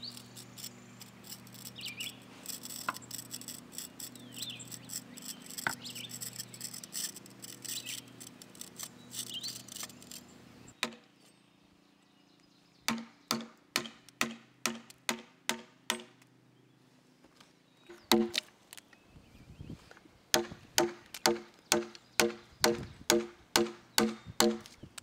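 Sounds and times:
light scratching: 0.0 - 10.4
insect hum: 0.0 - 10.7
birds chirping: 0.0 - 14.1, 15.9 - 25.0
chisel striking wood: 20.4 - 24.6.

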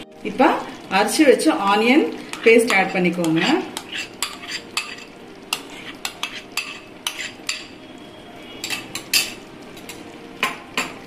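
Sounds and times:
metal spoon scraping cooking pan: 2.2 - 7.8, 8.5 - 10.0.

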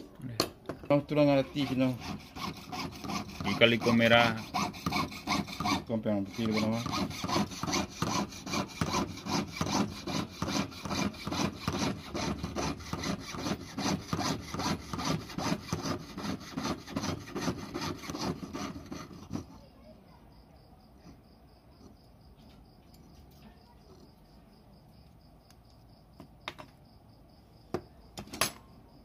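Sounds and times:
piercing saw cutting metal: 1.1 - 19.6.

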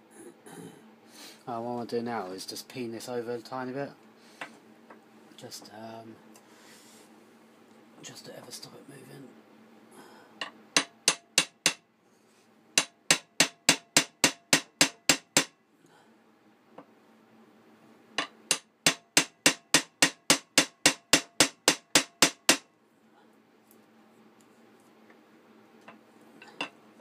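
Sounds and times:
hammer tapping a metal pin: 10.4 - 11.8, 12.8 - 15.5, 18.2 - 22.7.

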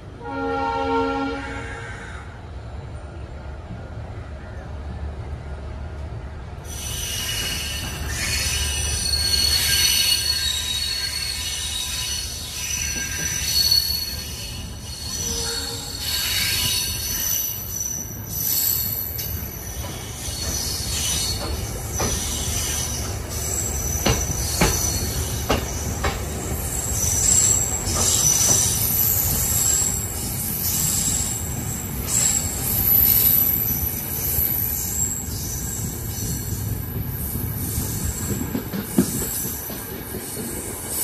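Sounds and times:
train wheels rumbling on track: 0.0 - 41.0
wheels squealing: 6.7 - 41.0
wheels clacking over rail joints: 19.1 - 30.1.

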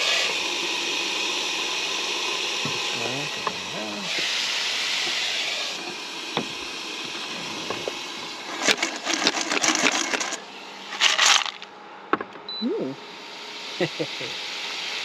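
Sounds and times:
steam hiss: 0.0 - 11.6, 13.2 - 15.0
shells rattling in a frying pan: 8.5 - 11.7.

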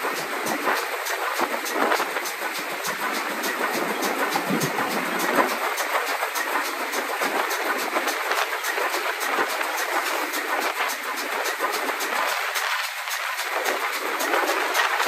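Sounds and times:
steam locomotive running: 0.0 - 15.0.

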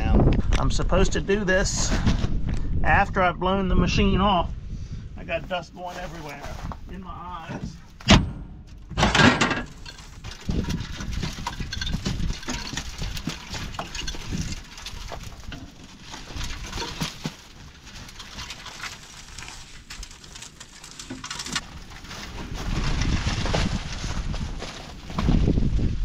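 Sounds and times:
corn cobs and chaff rattling: 9.4 - 25.7.

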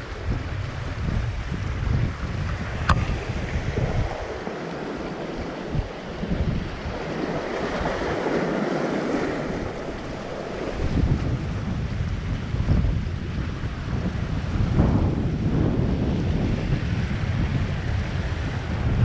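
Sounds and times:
sea waves washing against concrete: 0.0 - 19.0
wind buffeting microphone: 0.0 - 19.0
sharp click: 2.8 - 3.2.

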